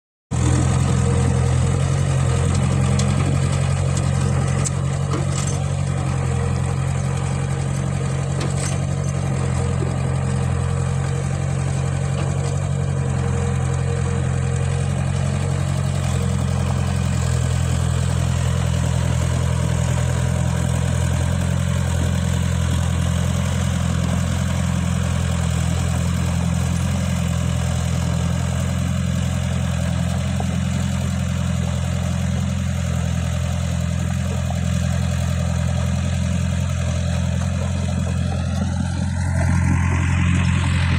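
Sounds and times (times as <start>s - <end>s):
excavator diesel engine droning: 0.3s - 40.9s.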